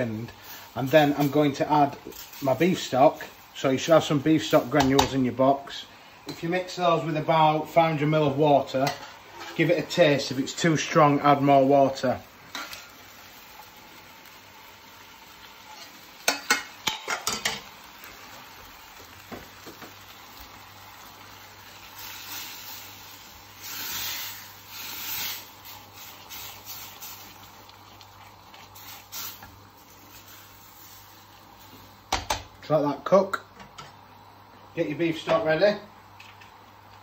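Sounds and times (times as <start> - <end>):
spatula scraping sauce in a pan: 23.6 - 29.5.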